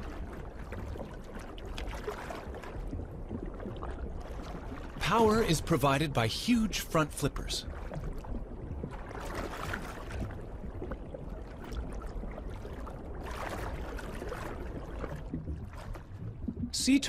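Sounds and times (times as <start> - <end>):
rushing water: 0.0 - 17.0
underwater low rumble: 0.0 - 17.0.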